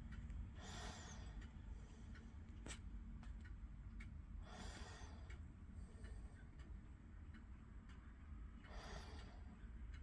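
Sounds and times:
wall clock ticking: 0:00.0 - 0:10.0.

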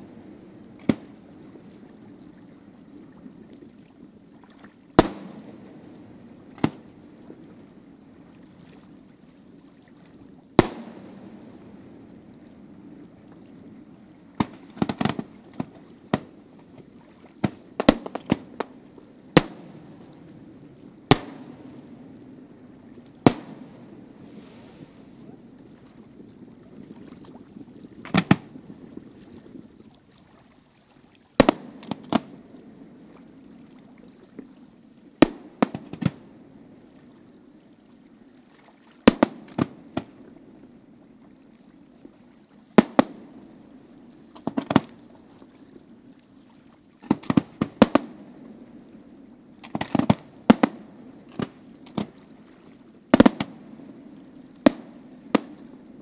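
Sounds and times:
low background noise: 0:00.0 - 0:56.0
fireworks bursting with bangs: 0:10.6 - 0:11.2, 0:14.4 - 0:16.3, 0:17.4 - 0:18.8, 0:19.4 - 0:19.8, 0:21.1 - 0:21.6, 0:23.2 - 0:24.7, 0:28.0 - 0:28.5, 0:31.4 - 0:32.3, 0:35.2 - 0:36.2, 0:39.1 - 0:40.2, 0:42.8 - 0:43.2, 0:47.0 - 0:48.2, 0:49.6 - 0:52.2, 0:53.1 - 0:53.6, 0:54.6 - 0:55.7.

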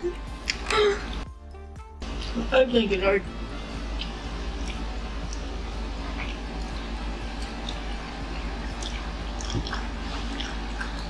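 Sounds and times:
steady low hum: 0:00.0 - 0:11.0
mouth clicks and smacks chewing: 0:04.0 - 0:05.5, 0:06.2 - 0:11.0.

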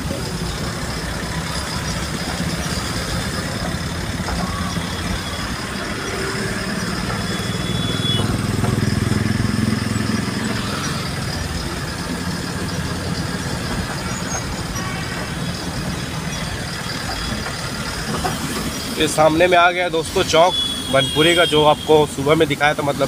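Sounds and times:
diesel truck engine droning: 0:00.0 - 0:23.0
road noise: 0:00.0 - 0:23.0.

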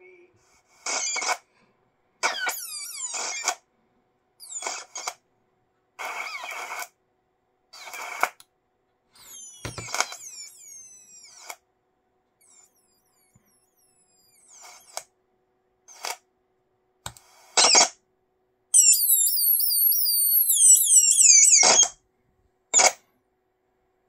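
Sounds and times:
audio crackle bursts: 0:00.6 - 0:01.5, 0:02.2 - 0:03.7, 0:04.4 - 0:05.2, 0:06.0 - 0:07.0, 0:07.7 - 0:08.4, 0:09.2 - 0:11.6, 0:12.4 - 0:15.1, 0:15.9 - 0:16.3, 0:17.2 - 0:18.0, 0:18.8 - 0:22.0, 0:22.8 - 0:23.0
high-pitched downward squeals: 0:09.2 - 0:11.6, 0:12.4 - 0:15.1, 0:18.8 - 0:22.0.

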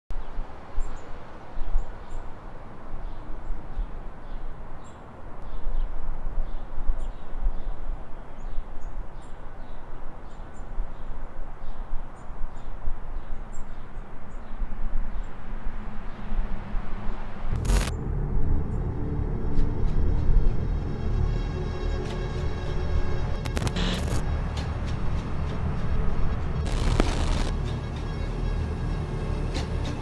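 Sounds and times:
low rumble: 0:17.5 - 0:27.5.

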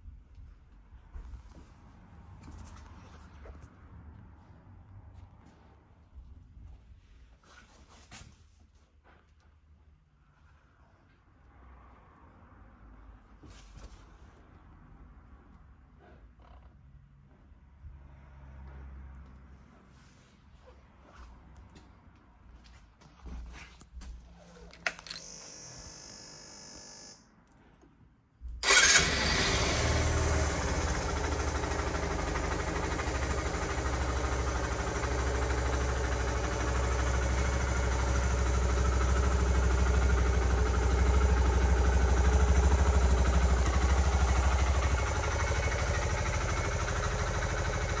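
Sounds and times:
motorcycle engine idling: 0:28.7 - 0:48.0.

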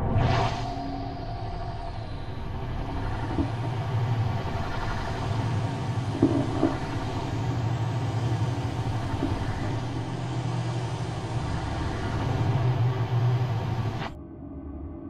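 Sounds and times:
low electronic drone: 0:00.0 - 0:15.0.

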